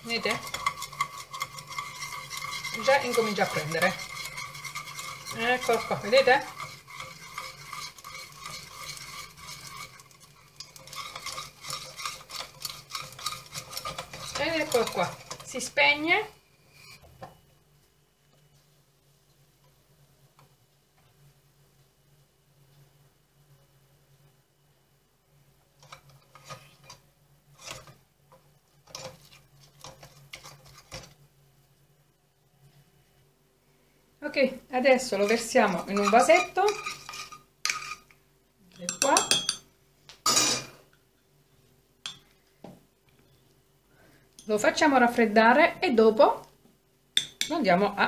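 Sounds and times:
whisk scraping metal saucepan: 0.0s - 16.0s, 25.8s - 31.2s, 34.9s - 38.2s
stirring sticky paste: 0.0s - 16.3s, 28.7s - 31.2s, 34.9s - 38.1s.

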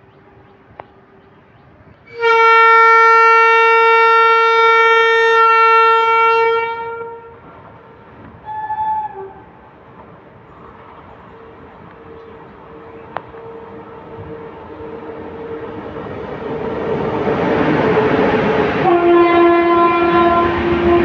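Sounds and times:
electric locomotive horn blasts: 2.1s - 7.5s, 8.4s - 9.6s, 11.3s - 16.4s, 18.7s - 21.0s.

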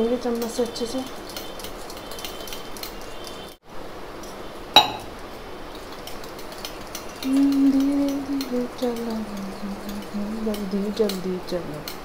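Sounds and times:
fork whisking paste in metal bowl: 0.0s - 3.3s, 5.8s - 12.0s
sharp metal clink: 4.8s - 5.1s.

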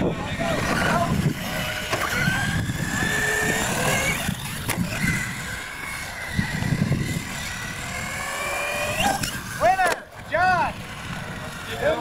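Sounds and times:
toy car motor whine: 0.0s - 12.0s.

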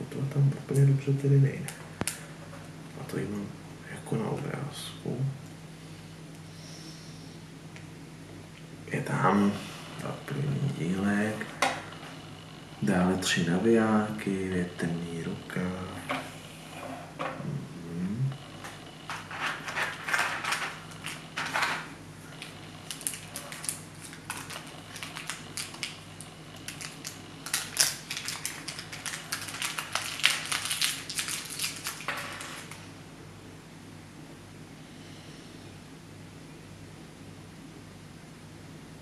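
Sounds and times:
plastic bag crinkling: 22.4s - 32.9s.

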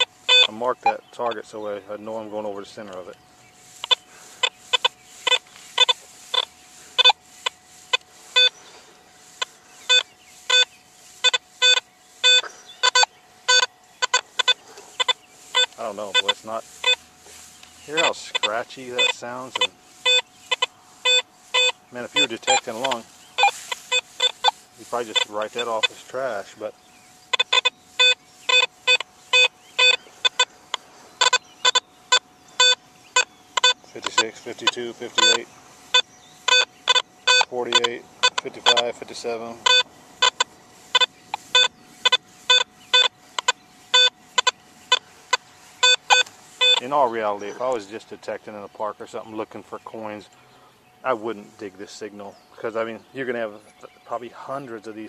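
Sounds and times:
metal detector short beeps: 0.0s - 1.5s, 3.7s - 17.1s, 17.8s - 26.6s, 27.2s - 46.9s.

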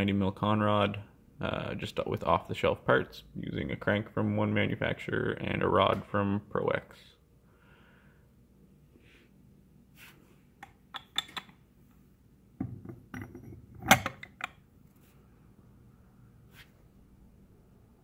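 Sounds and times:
handling clicks and knocks: 12.6s - 14.6s.

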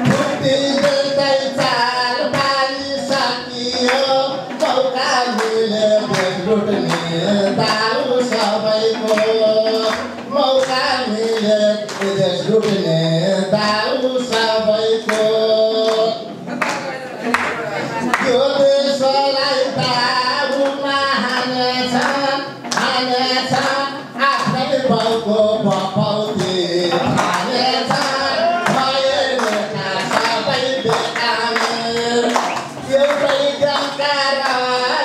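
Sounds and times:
audience clapping in time: 0.0s - 35.0s
man chanting into microphone: 18.2s - 35.0s.

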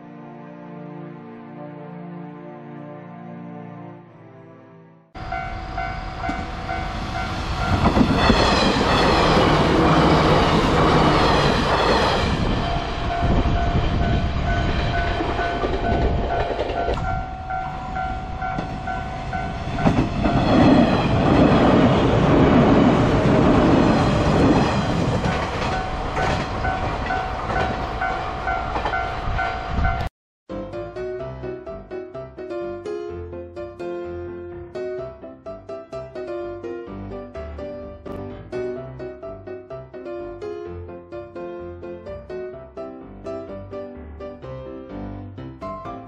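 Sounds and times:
crossing warning bell ringing: 5.2s - 30.1s
electric train rumbling on rails: 5.2s - 30.1s.

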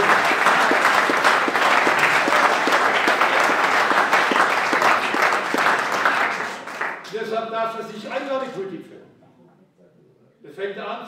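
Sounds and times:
audience applauding: 0.0s - 7.2s.

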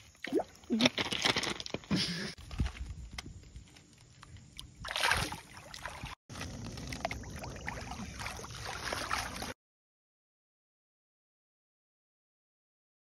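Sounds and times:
water sloshing: 4.3s - 9.6s
water splashing in shallow river: 4.4s - 9.6s.

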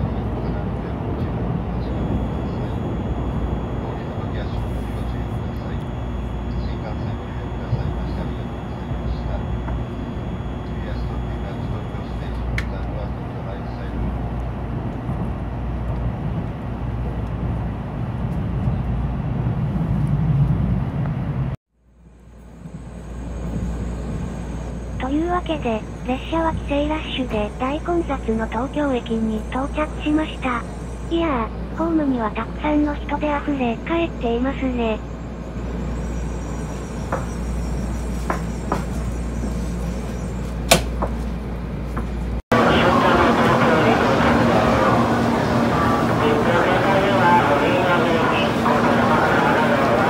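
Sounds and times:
train rumble: 0.0s - 50.0s
train running gear rumble: 30.6s - 50.0s.

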